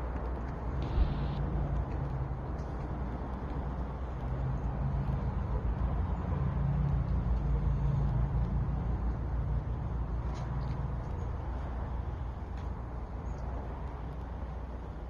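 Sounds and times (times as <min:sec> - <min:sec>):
motor rumbling: 0:00.8 - 0:01.4.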